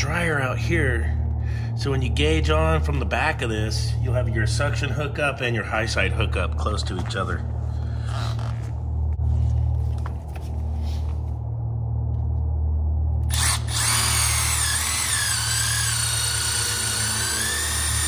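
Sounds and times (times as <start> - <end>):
steady low hum: 0.0 - 18.0
cordless drill motor whine: 13.2 - 18.0.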